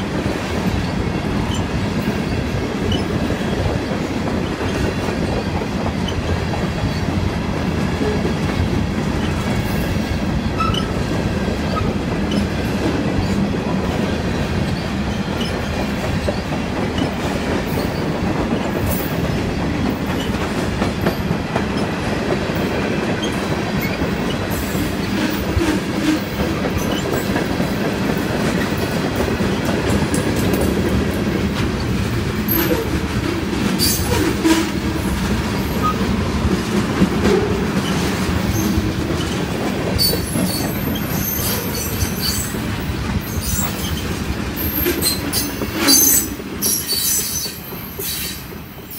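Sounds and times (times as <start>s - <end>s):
train wheels rumbling and clattering: 0.0s - 48.9s
high wheel squeals: 10.4s - 11.0s, 35.6s - 36.0s, 40.0s - 42.6s, 43.2s - 48.9s.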